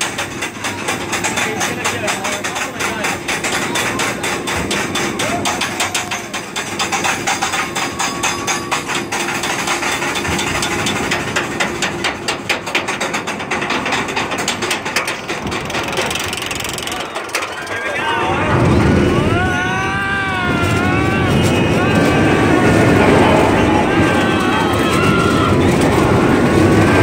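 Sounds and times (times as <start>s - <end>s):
ratchet clacking: 0.0s - 18.0s
lift chain running: 0.0s - 27.0s.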